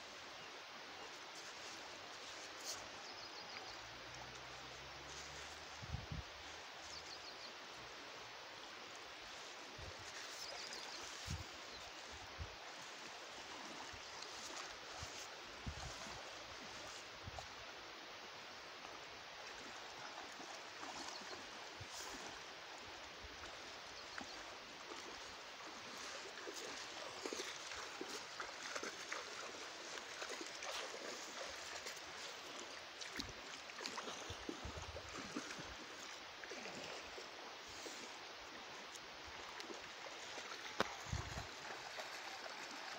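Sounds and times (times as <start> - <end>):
river water sloshing: 0.0 - 42.9
small splashes and drips: 18.8 - 42.9.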